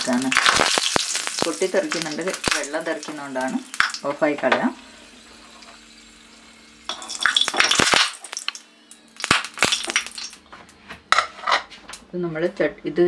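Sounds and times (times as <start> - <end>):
chillies spluttering in hot oil: 0.0 - 10.4.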